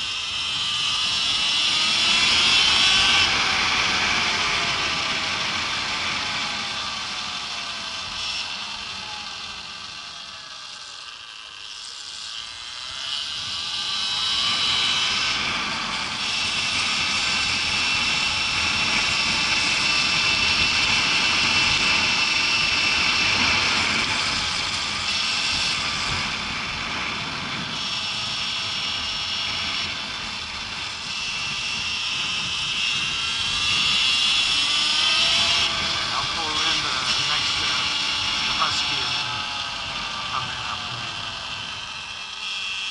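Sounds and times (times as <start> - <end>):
motorbike engine whine: 0.0 - 42.9
road noise: 0.0 - 42.9
wind noise: 13.2 - 42.3.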